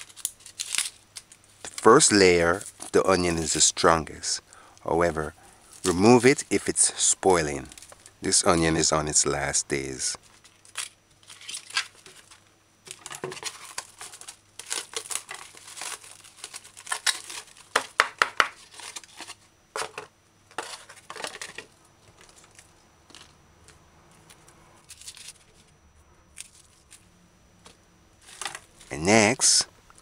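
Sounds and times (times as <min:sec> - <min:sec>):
plastic wrapping crinkling: 0:00.0 - 0:03.0, 0:10.2 - 0:25.7, 0:26.4 - 0:29.0.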